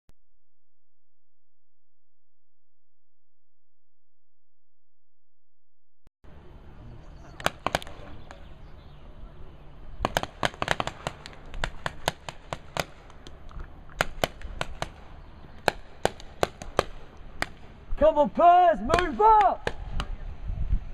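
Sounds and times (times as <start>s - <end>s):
paintball markers firing: 7.4s - 8.4s, 10.0s - 13.4s, 14.0s - 15.0s, 15.6s - 17.7s.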